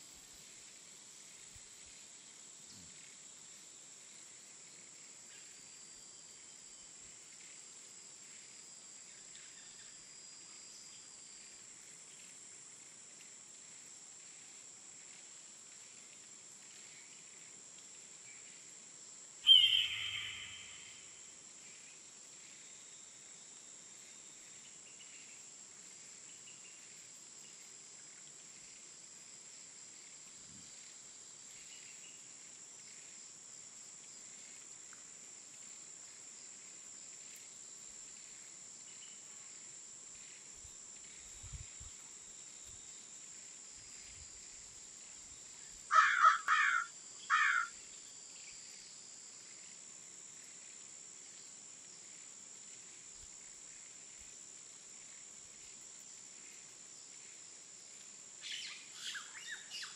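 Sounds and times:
faint bird chirps: 19.4 - 21.2, 58.4 - 59.9
loud bird calls: 19.5 - 21.0, 45.9 - 47.7
high-pitched insect buzz: 19.5 - 21.2.

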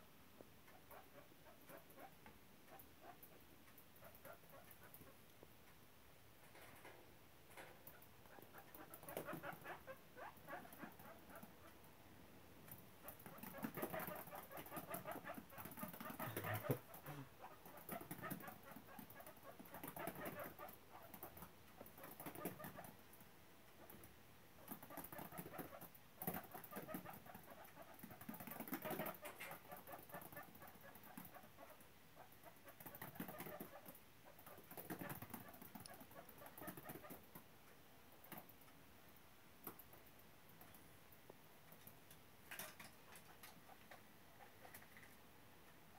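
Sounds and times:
guinea pigs clicking and scuffling: 0.4 - 12.0, 12.6 - 45.9.

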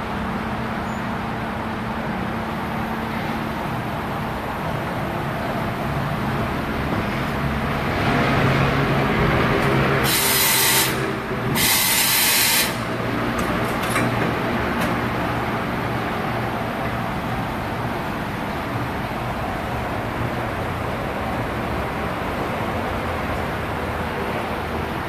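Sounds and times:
air hissing blasts: 10.0 - 13.0.

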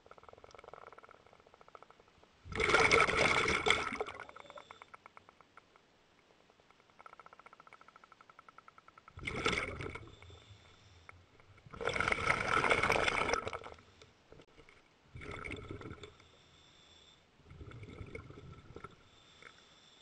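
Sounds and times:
diver exhaling bubbles underwater: 2.5 - 4.5, 9.2 - 10.2, 11.7 - 13.8, 15.1 - 16.2, 17.4 - 19.0.

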